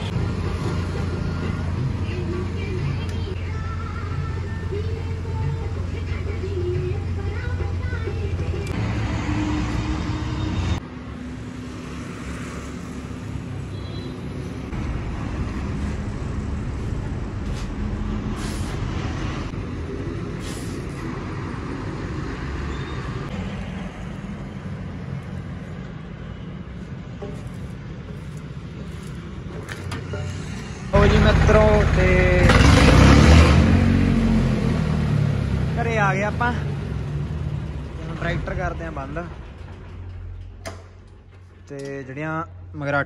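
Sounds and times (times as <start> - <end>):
vehicle engine and road noise: 0.0 - 43.0
short sharp hisses: 18.4 - 18.8, 20.4 - 20.9.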